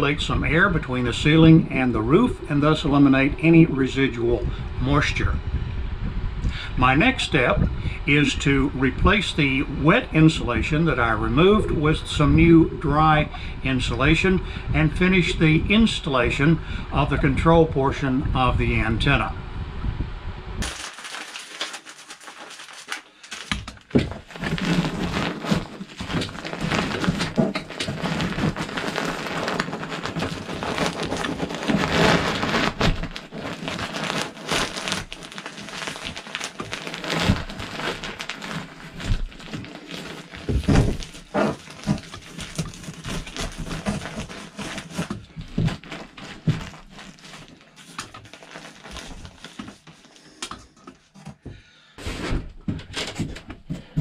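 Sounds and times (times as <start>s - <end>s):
insulation crinkling and rustling: 0.0s - 5.2s, 20.6s - 51.4s, 52.1s - 54.0s
knocks and thumps: 23.5s - 28.7s, 50.5s - 54.0s.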